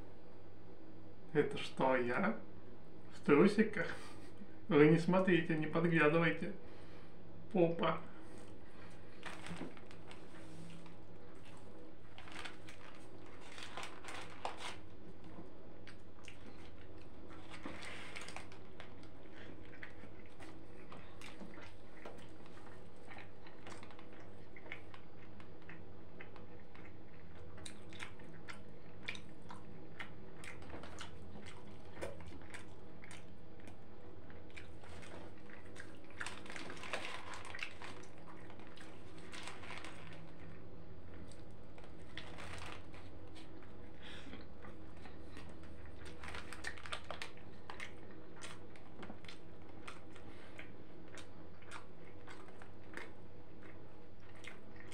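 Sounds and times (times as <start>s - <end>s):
person chewing: 8.3s - 54.9s.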